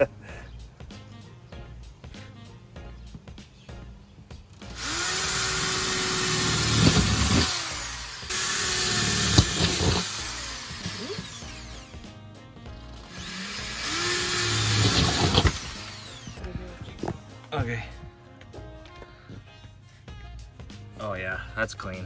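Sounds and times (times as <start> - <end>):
background music: 0.0 - 22.0
electric drill boring through metal: 4.7 - 12.0, 12.9 - 16.5.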